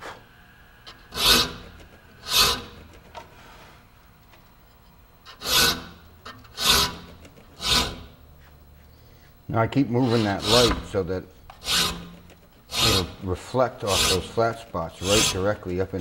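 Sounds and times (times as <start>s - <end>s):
file rasping on saw teeth: 0.9s - 3.1s, 5.3s - 8.2s, 9.9s - 11.0s, 11.6s - 16.0s.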